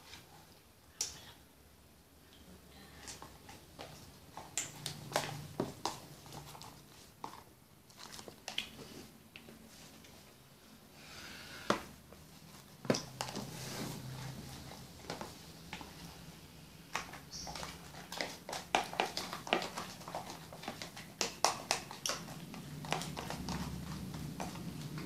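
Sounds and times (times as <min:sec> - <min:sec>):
slime being stirred: 0:03.0 - 0:10.2, 0:12.2 - 0:25.0
plastic tubs and caps clicking: 0:16.9 - 0:25.0.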